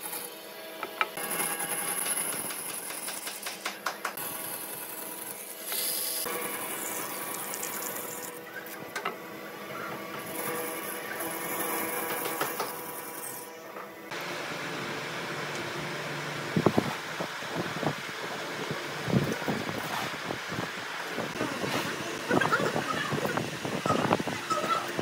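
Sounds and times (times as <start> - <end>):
band saw cutting wood: 1.0 - 3.6, 4.2 - 8.9, 9.9 - 14.3.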